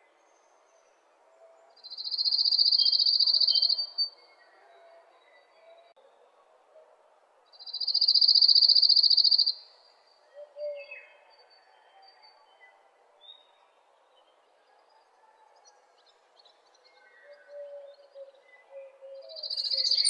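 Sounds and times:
bird chirps: 0:01.8 - 0:04.2, 0:07.6 - 0:09.7, 0:17.2 - 0:20.0.

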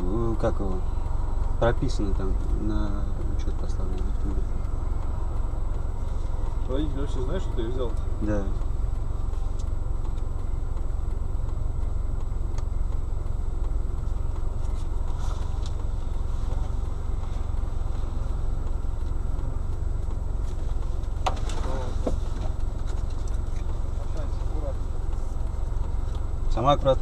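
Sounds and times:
car engine idling: 0:00.0 - 0:27.0
sharp clicks: 0:00.4 - 0:16.3.

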